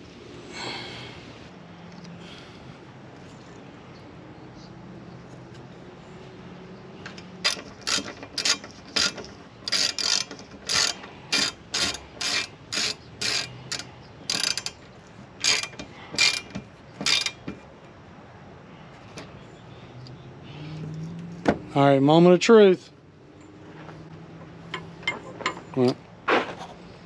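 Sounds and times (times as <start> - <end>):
socket ratchet clicking: 7.1 - 17.4.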